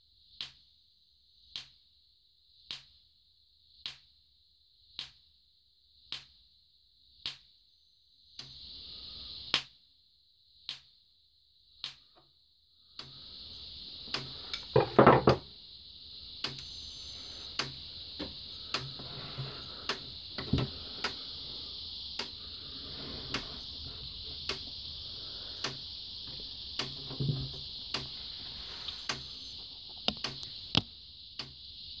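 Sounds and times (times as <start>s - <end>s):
steady high hiss: 7.2s - 32.0s.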